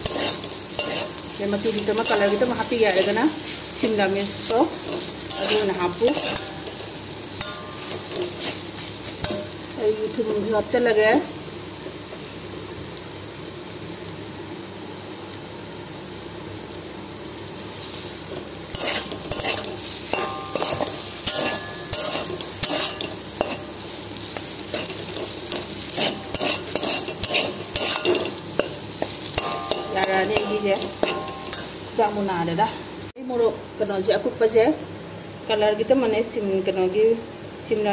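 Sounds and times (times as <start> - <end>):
metal spatula scraping a pan: 0.0 - 9.7, 18.3 - 31.9
food sizzling in a pan: 0.0 - 37.9.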